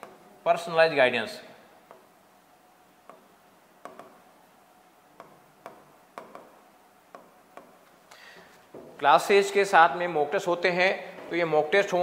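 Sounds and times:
pen tapping on whiteboard: 0:03.0 - 0:04.2, 0:05.2 - 0:07.8.

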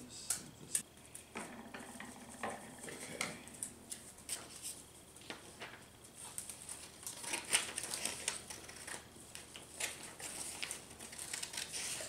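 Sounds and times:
paper rustling and crinkling: 0:03.9 - 0:12.0
scissors cutting paper: 0:06.2 - 0:12.0.

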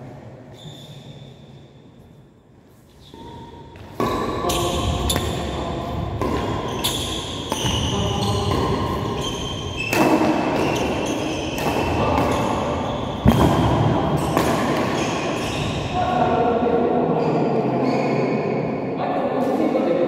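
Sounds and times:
shoes squeaking on court floor: 0:00.5 - 0:13.6, 0:14.2 - 0:16.0
racket hitting shuttlecock: 0:03.7 - 0:15.5.

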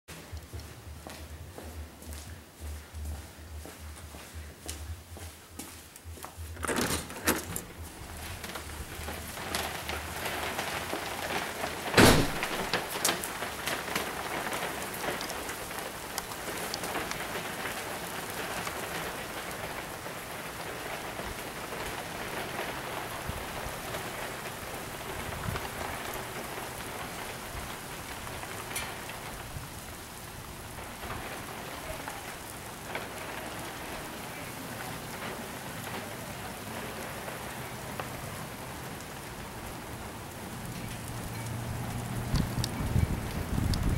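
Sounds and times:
hail and rain on concrete: 0:06.7 - 0:43.9
loud bang: 0:12.0 - 0:12.8.

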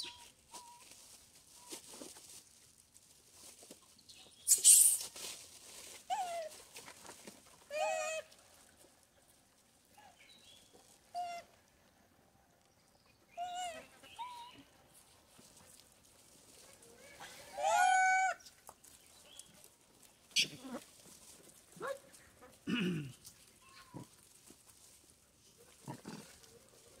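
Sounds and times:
plastic bag crinkle: 0:00.3 - 0:04.0
monkeys high-pitched calls: 0:13.3 - 0:14.6, 0:17.1 - 0:18.4.

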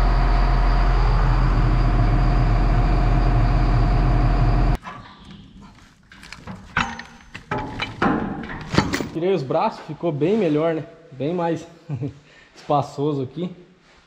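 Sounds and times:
tractor diesel engine idling: 0:00.0 - 0:04.8
metallic knocks and clanks: 0:06.1 - 0:09.2.

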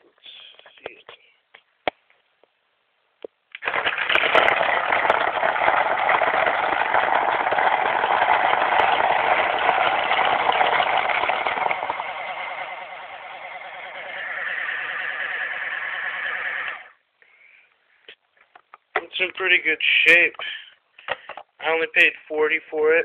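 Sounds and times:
paintballs rattling: 0:03.5 - 0:17.0
loader motor spinning: 0:04.0 - 0:17.0.

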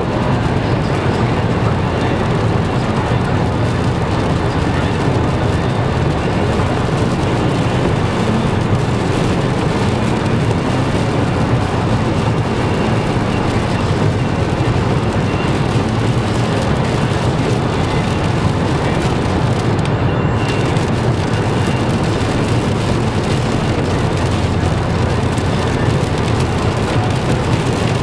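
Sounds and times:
car engine running: 0:00.0 - 0:28.0
tyres rushing over wet road: 0:00.0 - 0:28.0.

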